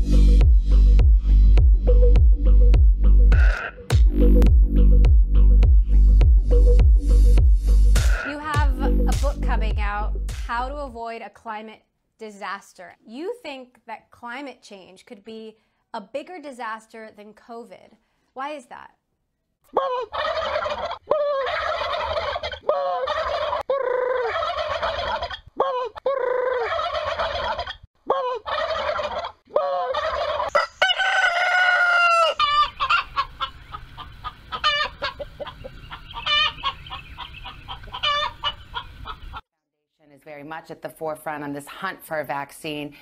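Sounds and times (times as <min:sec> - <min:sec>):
poultry calling: 0:19.7 - 0:39.4.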